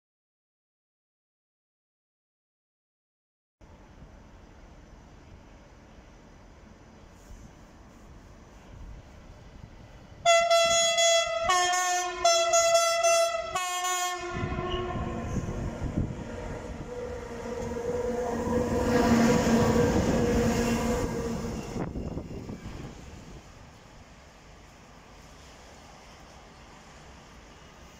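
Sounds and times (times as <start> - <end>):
freight train rumbling past: 3.6 - 27.9
two-tone train horn: 10.2 - 22.2.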